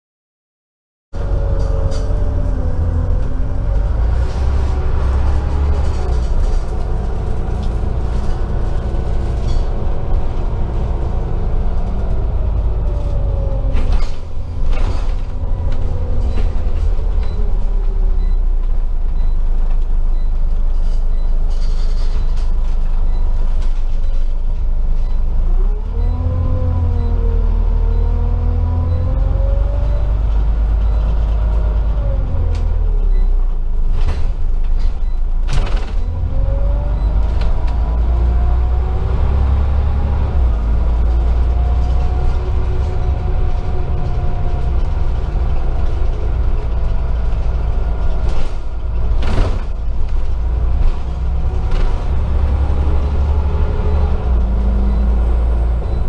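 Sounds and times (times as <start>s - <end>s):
bus engine rumbling and whining: 1.2s - 56.0s.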